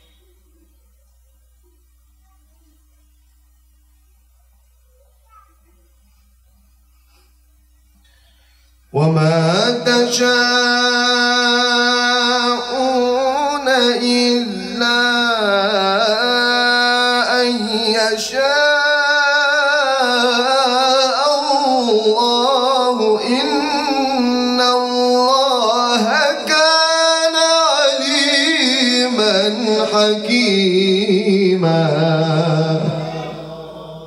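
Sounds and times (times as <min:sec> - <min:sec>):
man chanting melodically: 0:08.9 - 0:34.0.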